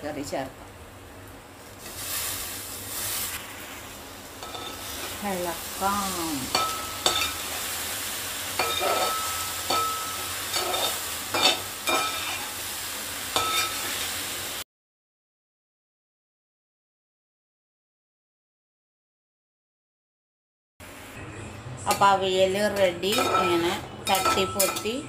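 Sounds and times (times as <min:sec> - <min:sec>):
hot pan sizzling: 0:01.1 - 0:14.6, 0:21.9 - 0:25.0.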